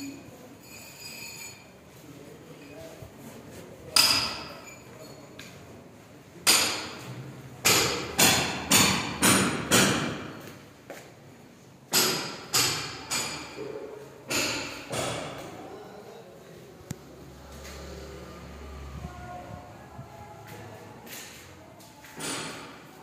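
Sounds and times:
hammer strikes echoing: 6.4s - 10.4s, 11.9s - 15.5s.

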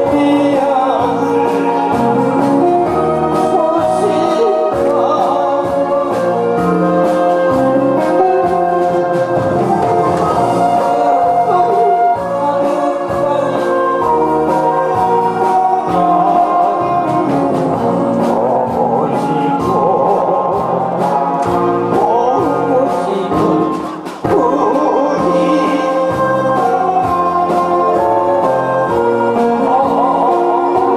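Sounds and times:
man singing into a microphone: 0.0s - 9.2s, 10.6s - 30.9s
instrumental accompaniment: 0.0s - 30.9s.

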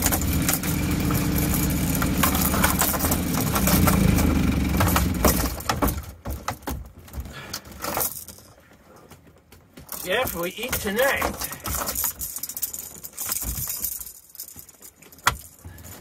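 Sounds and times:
low mechanical drone: 0.0s - 5.7s
scattered clicks and knocks: 0.0s - 8.5s, 9.2s - 15.6s.

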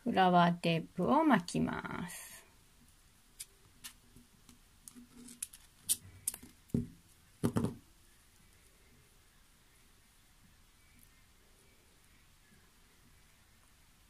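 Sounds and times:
clicks and rustles of tape wrapping: 3.4s - 6.8s.

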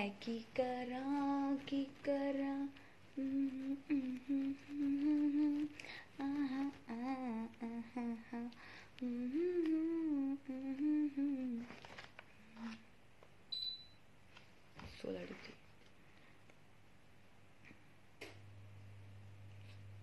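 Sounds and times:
woman humming a tune: 3.2s - 11.7s.

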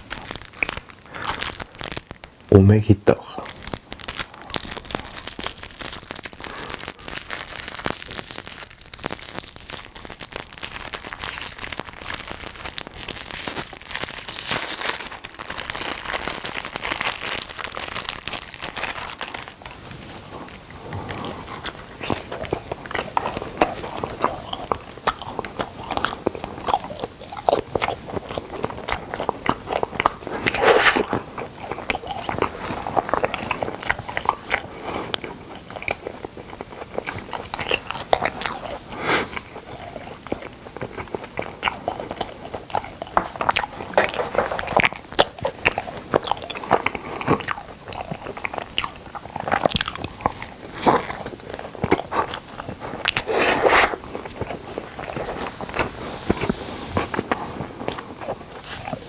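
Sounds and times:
biting and chewing: 0.0s - 59.0s
wrapper crinkling: 0.0s - 59.0s.

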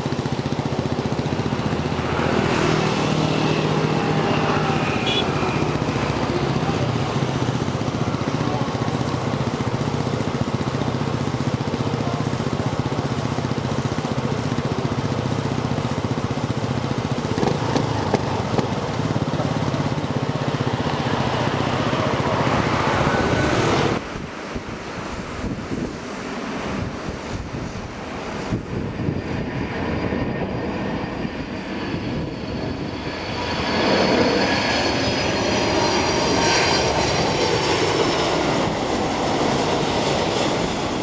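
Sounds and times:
airplane on approach: 0.0s - 41.0s
jet engines rumbling: 0.0s - 41.0s
wind on microphone: 21.7s - 33.6s.

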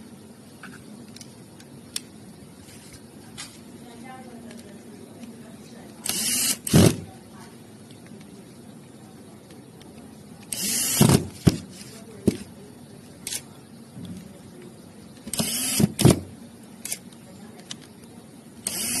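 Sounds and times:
power screwdriver driving screws: 6.1s - 7.0s, 10.5s - 11.1s, 15.3s - 16.1s, 18.6s - 19.0s
small clicks of parts handled: 16.8s - 18.2s.

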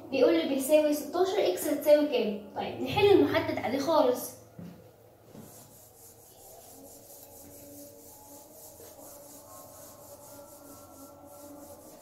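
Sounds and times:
eraser rubbing on whiteboard: 5.3s - 12.0s.

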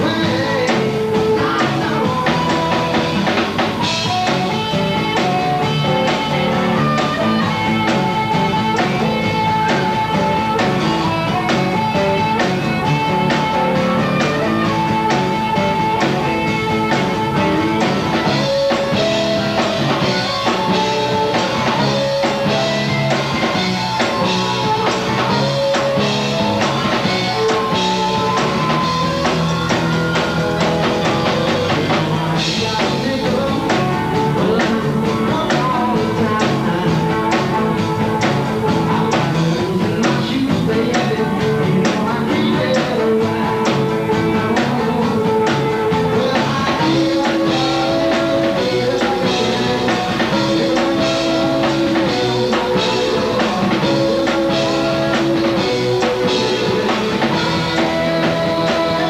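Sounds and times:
harmonica wailing: 0.0s - 36.4s, 44.0s - 59.0s
drum kit: 0.0s - 59.0s
electric guitar: 0.0s - 59.0s.

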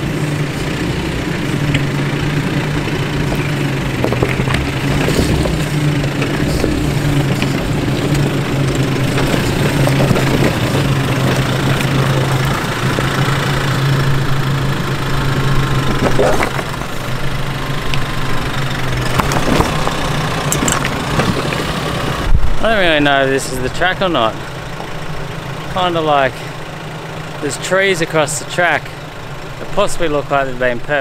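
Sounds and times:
rocks crunching under tyres: 0.0s - 23.0s
engine running at low revs: 0.0s - 31.0s.

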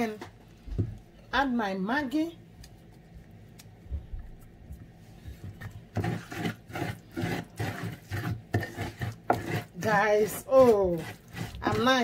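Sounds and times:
pestle grinding in wooden mortar: 5.5s - 12.0s.

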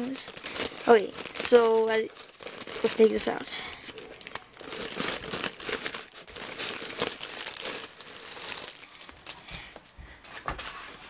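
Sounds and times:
plastic wrapping crinkling: 0.0s - 9.8s.

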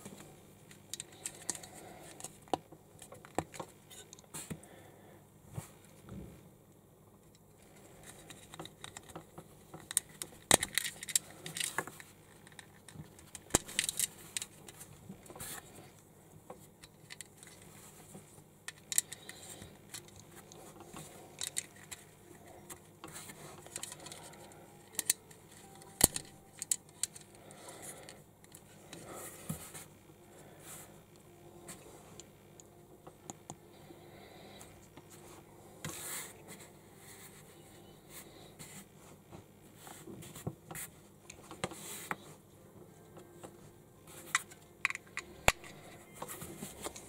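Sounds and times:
plastic bricks clicking and clattering: 9.8s - 14.6s, 20.9s - 22.0s.

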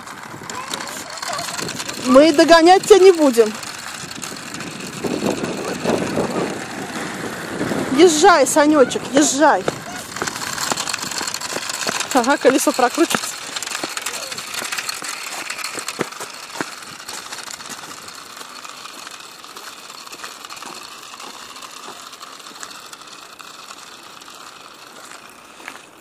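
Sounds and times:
child's bicycle rattling and clicking: 0.0s - 26.0s
plastic toy dragged over paving: 0.0s - 26.0s.

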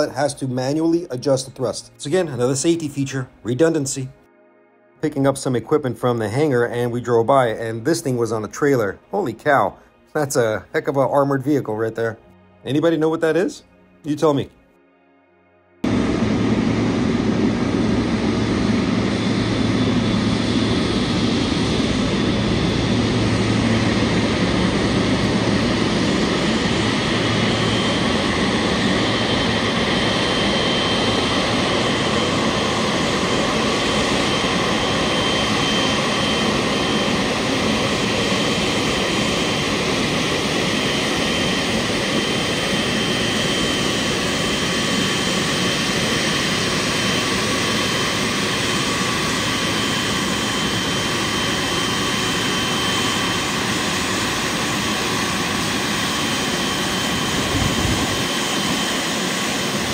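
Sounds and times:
high turbine whine: 15.8s - 59.9s
jet turbine running: 15.8s - 59.9s.

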